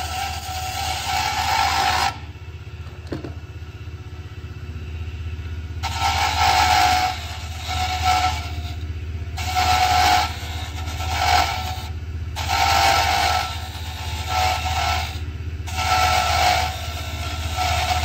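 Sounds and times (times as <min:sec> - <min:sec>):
turning tool rasping on wood: 0:00.0 - 0:02.2, 0:05.8 - 0:08.8, 0:09.4 - 0:18.0
lathe motor humming: 0:05.7 - 0:18.0.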